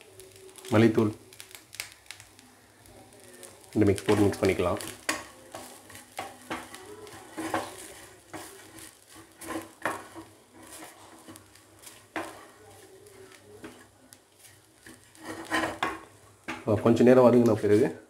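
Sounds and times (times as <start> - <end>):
spoon scraping metal pan: 4.0 - 16.0.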